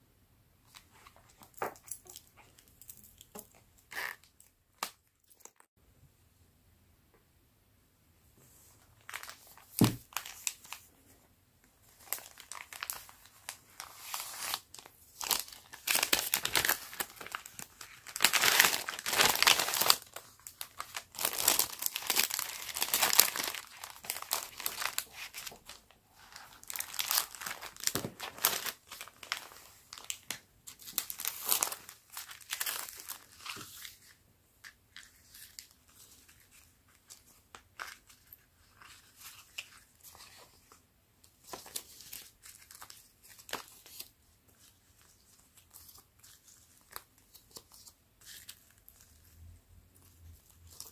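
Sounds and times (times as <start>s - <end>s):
plastic crinkling: 11.8s - 40.5s.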